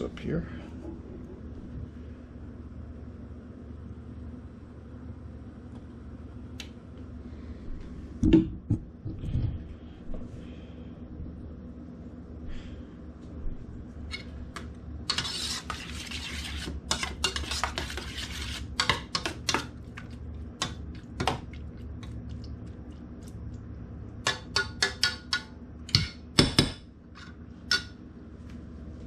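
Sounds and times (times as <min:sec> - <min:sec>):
spoon stirring and scraping saucepan: 0:14.1 - 0:23.4, 0:24.2 - 0:26.2.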